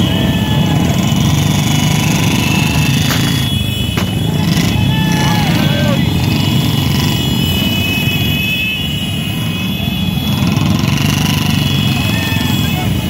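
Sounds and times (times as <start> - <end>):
motorcycle engines rumbling: 0.0 - 13.0.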